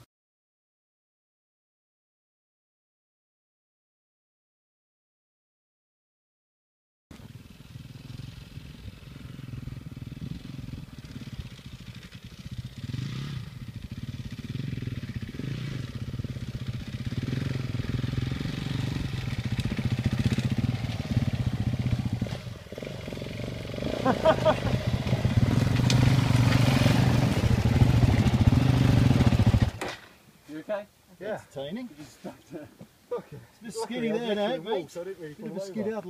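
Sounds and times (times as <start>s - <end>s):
motorcycle engines revving: 7.1s - 29.9s.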